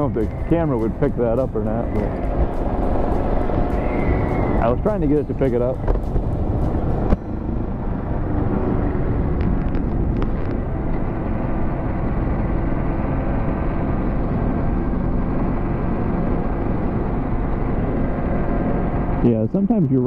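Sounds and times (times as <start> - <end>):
wind on microphone: 0.0 - 11.5
motorcycle engine running: 0.0 - 20.0.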